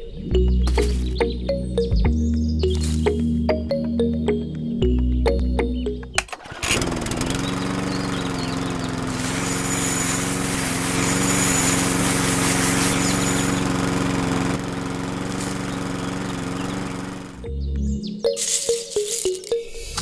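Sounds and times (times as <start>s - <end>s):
small motor running: 6.4s - 17.5s
hiss: 9.1s - 13.7s.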